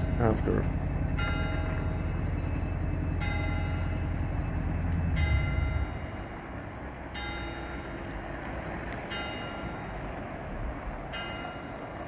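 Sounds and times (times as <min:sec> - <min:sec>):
church bell tolling: 0:00.0 - 0:02.2, 0:03.2 - 0:08.1
low rumble: 0:00.0 - 0:07.8.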